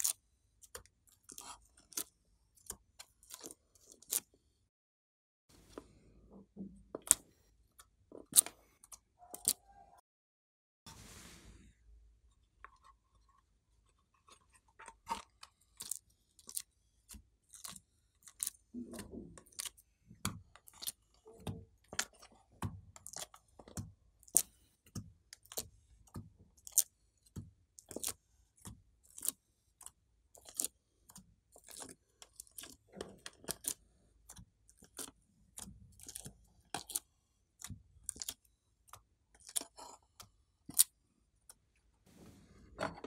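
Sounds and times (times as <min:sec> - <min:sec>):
sticky slime crackles: 0:27.8 - 0:39.8.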